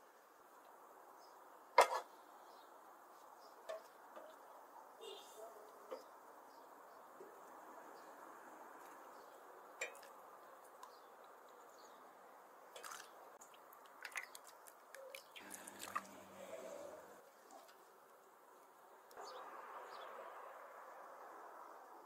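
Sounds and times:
liquid slopping: 12.8 - 16.8.

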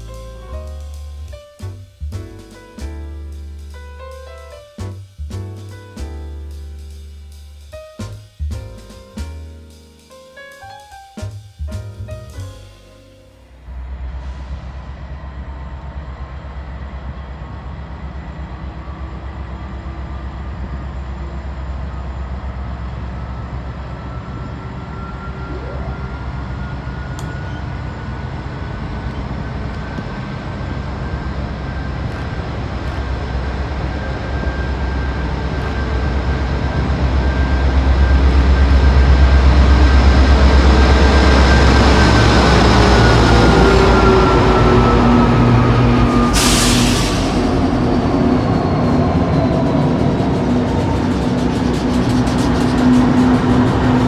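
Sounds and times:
locomotive engine rumble: 11.2 - 54.0.

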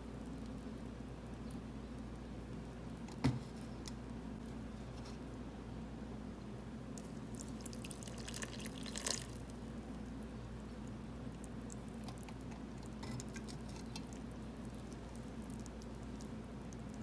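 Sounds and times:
faint ticks of soaking soil: 6.9 - 17.0
water pouring and splashing: 7.0 - 9.5.

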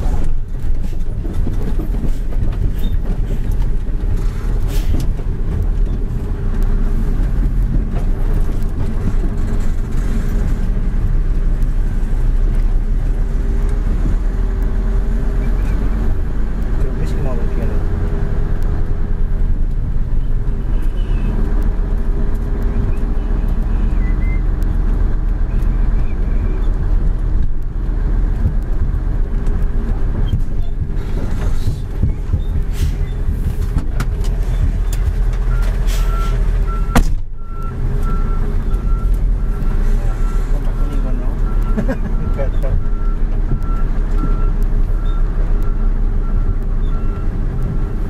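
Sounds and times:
cab rattles and knocks: 0.0 - 11.7, 24.6 - 37.4
truck diesel engine running: 0.0 - 48.0.

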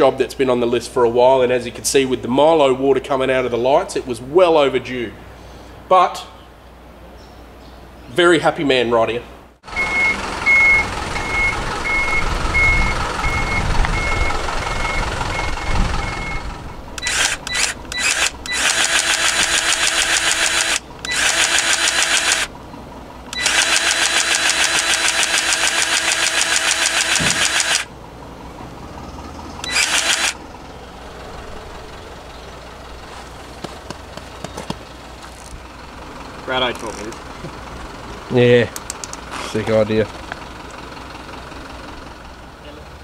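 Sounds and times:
truck reversing beeper: 9.6 - 22.5, 23.2 - 33.1
truck engine running: 9.6 - 43.0
powered grease gun running: 17.0 - 22.5, 23.2 - 27.9, 29.6 - 30.5.

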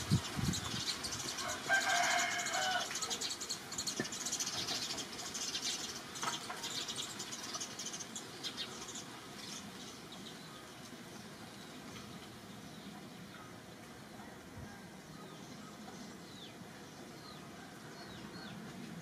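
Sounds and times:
birds chirping: 0.0 - 18.9
rooster crowing: 1.4 - 3.0.

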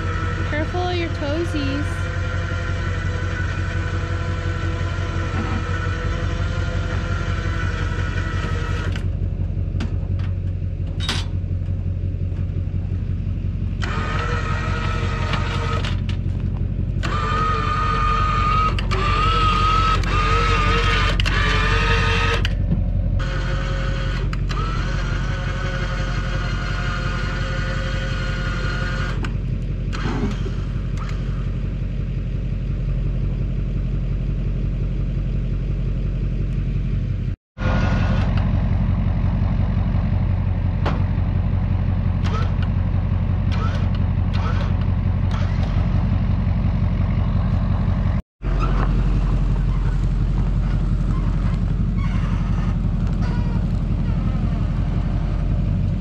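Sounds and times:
electric winch whining: 0.0 - 9.3, 13.7 - 31.7, 43.5 - 56.0
truck engine idling: 0.0 - 56.0.

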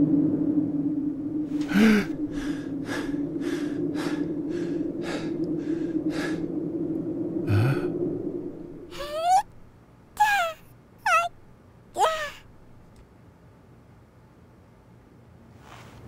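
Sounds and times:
low hum: 0.0 - 13.3
man breathing hard: 1.6 - 9.1
man grunting: 1.7 - 2.1.

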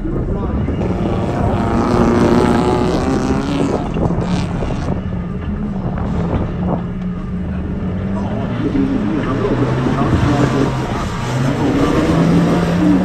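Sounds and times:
car engine running at low speed: 0.0 - 13.0.

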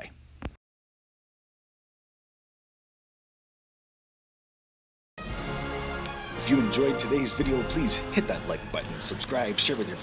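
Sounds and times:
man speaking: 6.4 - 10.0.

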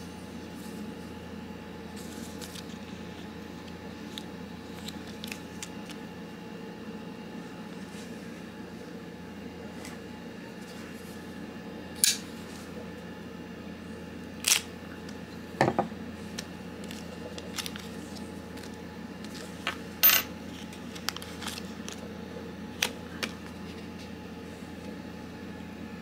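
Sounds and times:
steady low hum: 0.0 - 26.0
plastic bag crinkling: 16.2 - 19.6.

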